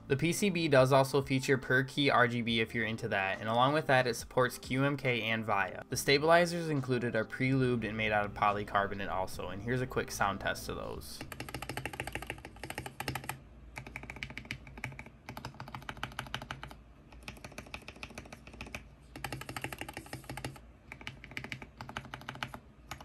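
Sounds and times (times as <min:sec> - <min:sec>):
mechanical keyboard keys pressed rapidly: 0:11.2 - 0:23.0.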